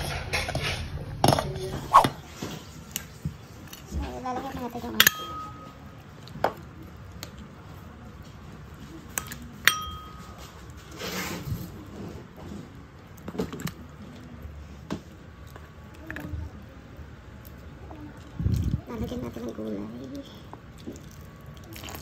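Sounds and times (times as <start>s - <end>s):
metal spatula clinking on bowl: 5.0s - 5.9s, 9.6s - 10.5s.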